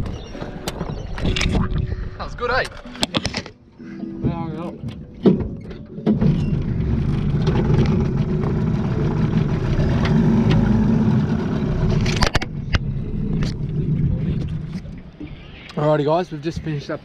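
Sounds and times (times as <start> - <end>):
outboard motor running: 6.0 - 15.4.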